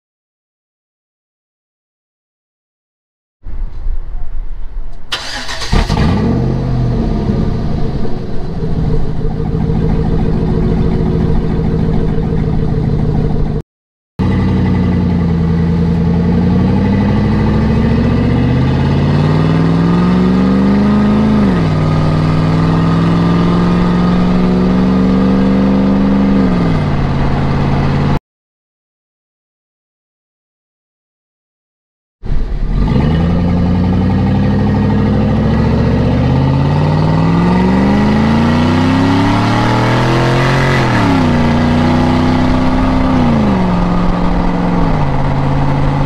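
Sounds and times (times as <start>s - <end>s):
loud car exhaust idling and accelerating: 5.7s - 13.6s, 14.2s - 28.2s, 32.3s - 46.0s.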